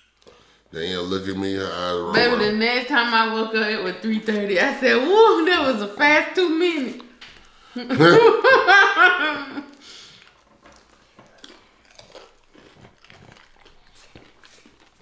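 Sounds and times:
laughter: 7.8 - 9.7
chewing and crunching: 9.6 - 15.0.

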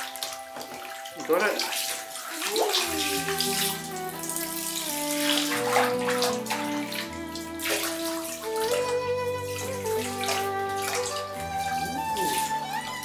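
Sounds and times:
bathwater splashing in a tub: 0.0 - 13.0
music with long held notes: 0.0 - 13.0.

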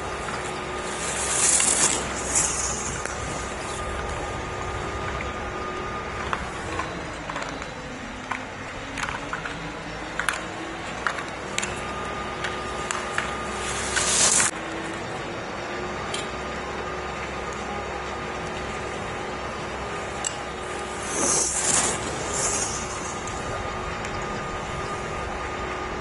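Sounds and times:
steady background hum: 0.0 - 26.0
skis scraping snow: 0.3 - 3.9, 13.2 - 14.5, 20.8 - 23.6.

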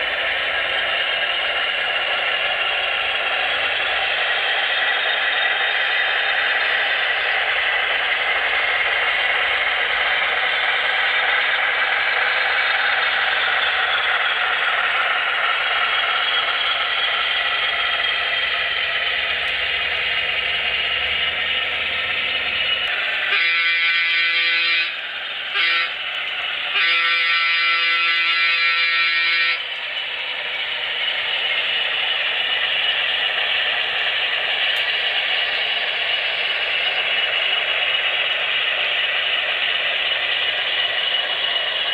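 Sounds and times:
model train running noise: 0.0 - 41.9
diesel engine sound through speakers: 11.4 - 23.6
locomotive horn blasts: 23.3 - 26.0, 26.7 - 29.6.

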